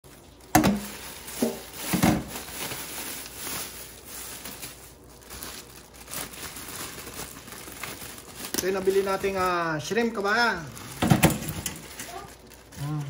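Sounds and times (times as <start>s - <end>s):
plastic bags rustling: 0.0s - 13.0s.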